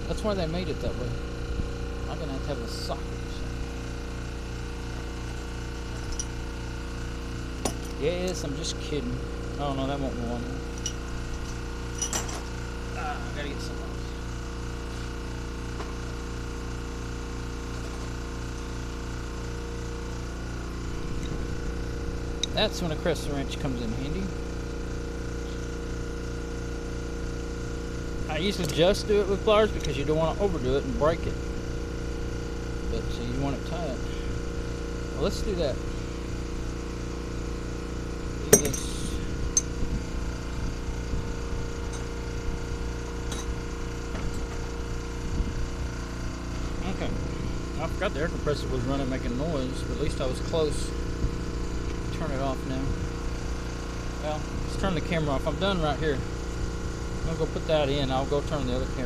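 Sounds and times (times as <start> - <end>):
air compressor humming: 0.0 - 59.0
metal hand tools clinking: 10.8 - 12.4, 38.5 - 39.7.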